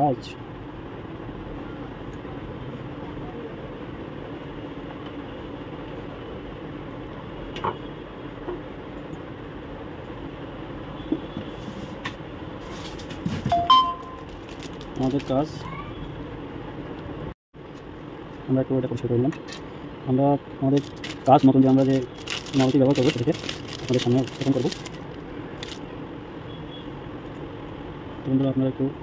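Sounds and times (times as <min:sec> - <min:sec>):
low background hum: 0:00.0 - 0:29.0
brief high tone: 0:13.5 - 0:14.3.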